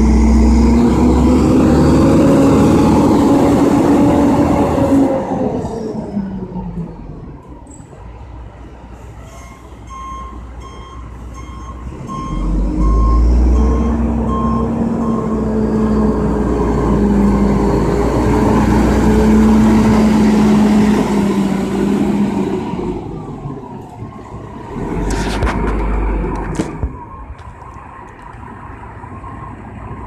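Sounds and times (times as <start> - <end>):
diesel engine running hard: 0.0 - 7.4, 11.8 - 27.0
reversing alarm beeping: 9.4 - 17.9.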